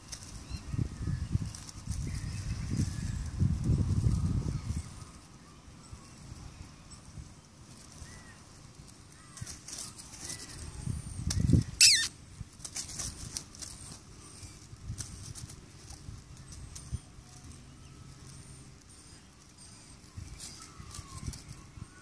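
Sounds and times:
feather toy rustling on grass: 0:00.0 - 0:22.0
faint bird calls: 0:07.9 - 0:12.2.

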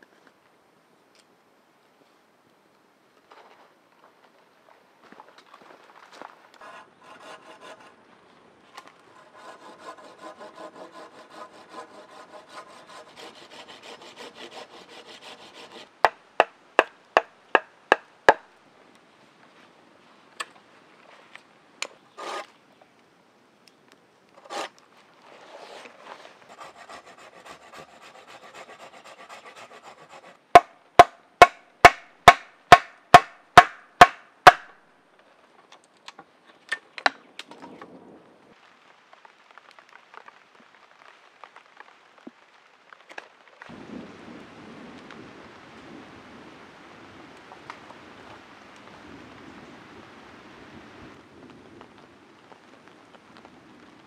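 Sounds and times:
hand saw rasping through wood: 0:06.6 - 0:08.0, 0:09.1 - 0:15.9, 0:22.2 - 0:22.5, 0:24.4 - 0:24.7, 0:25.4 - 0:30.7.

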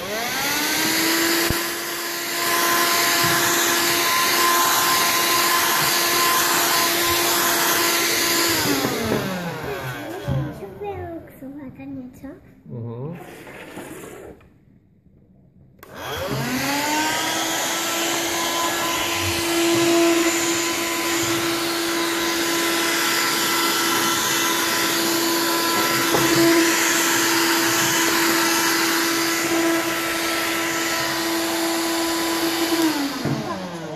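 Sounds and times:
handheld vacuum cleaner whine: 0:00.0 - 0:10.7, 0:15.8 - 0:33.9.

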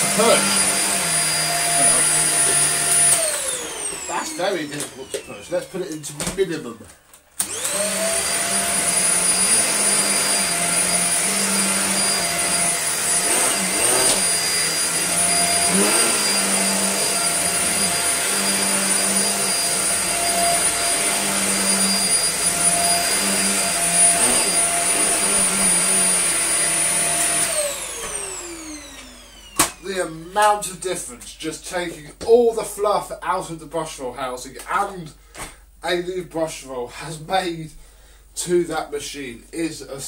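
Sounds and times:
vacuum cleaner motor whine: 0:00.0 - 0:06.0, 0:07.4 - 0:30.6.

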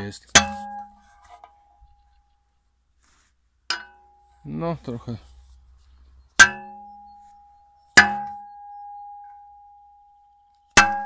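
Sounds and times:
metal striking steel spade: 0:00.0 - 0:01.6, 0:03.7 - 0:04.4, 0:06.4 - 0:07.1, 0:07.9 - 0:08.5, 0:10.7 - 0:11.0.

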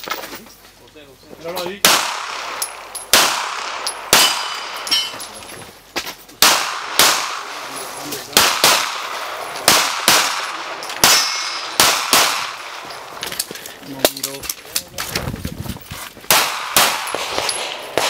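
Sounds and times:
pistol shots with echo: 0:01.8 - 0:05.3, 0:06.4 - 0:13.2, 0:16.3 - 0:18.0.

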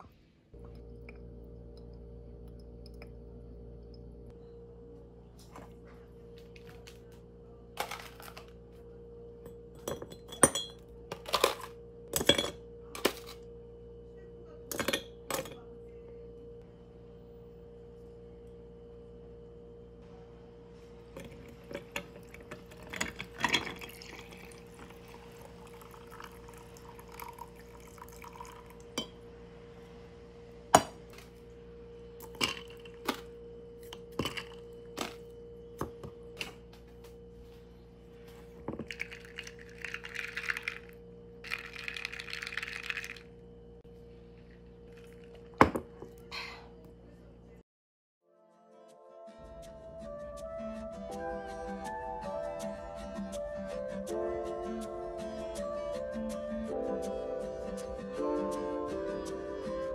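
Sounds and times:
steady low hum: 0:00.0 - 0:47.6
ice clinking against glass: 0:09.8 - 0:13.4, 0:21.2 - 0:29.2, 0:32.2 - 0:33.2, 0:33.9 - 0:35.2, 0:38.7 - 0:43.3
coffee pouring: 0:21.2 - 0:29.2, 0:38.6 - 0:43.4, 0:44.4 - 0:46.0.

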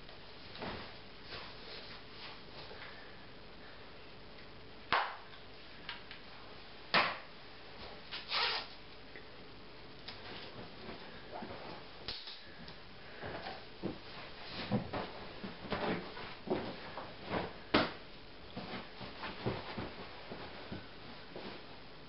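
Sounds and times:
steady hiss: 0:00.0 - 0:22.0
soft rustling: 0:00.3 - 0:03.2, 0:10.1 - 0:22.0.

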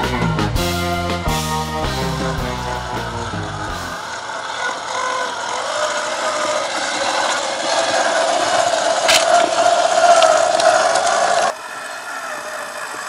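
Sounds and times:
electric motor and gears whining: 0:01.8 - 0:13.0
sharp click: 0:09.1 - 0:09.3.

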